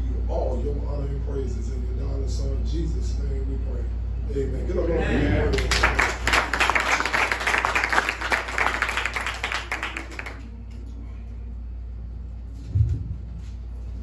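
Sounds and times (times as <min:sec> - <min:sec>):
low steady hum: 0:00.0 - 0:14.0
congregation clapping: 0:05.5 - 0:10.5.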